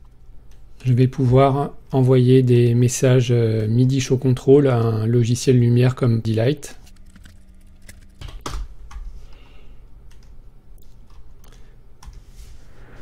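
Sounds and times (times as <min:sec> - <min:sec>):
faint low hum: 0:00.0 - 0:13.0
computer keyboard and mouse clicks: 0:06.8 - 0:09.1, 0:10.1 - 0:12.3.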